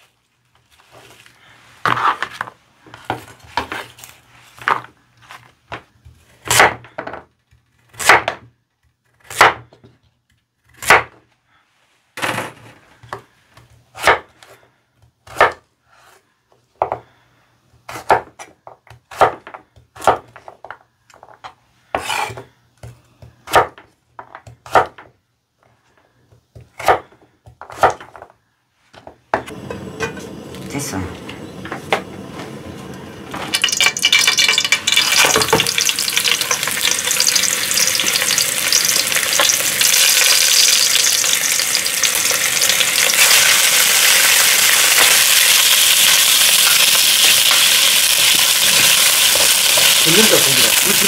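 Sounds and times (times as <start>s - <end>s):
knife chopping on wooden board: 8.0s - 8.4s, 17.9s - 18.3s, 24.5s - 25.0s, 26.6s - 28.1s.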